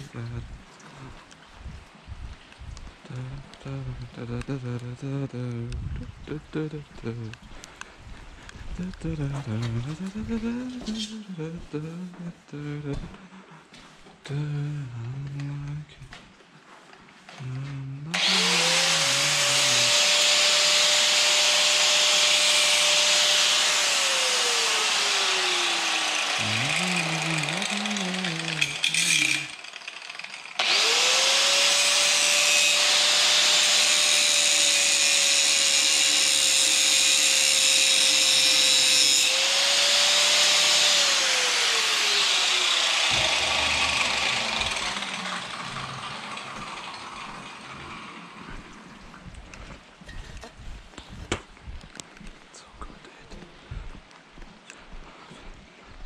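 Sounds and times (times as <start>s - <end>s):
electric power tool whining: 18.1s - 48.5s.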